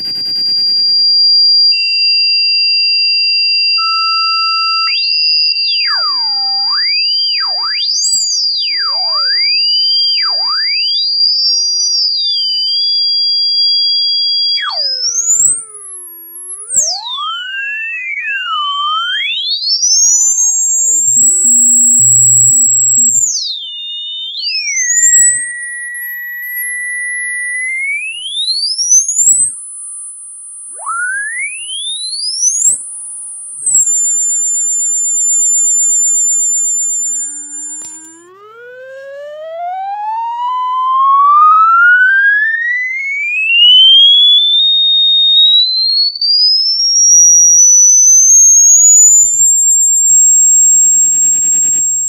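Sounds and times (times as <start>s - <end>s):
short electronic buzz: 0.0s - 1.1s, 50.2s - 52.0s
electronic whistling tones: 0.0s - 52.0s.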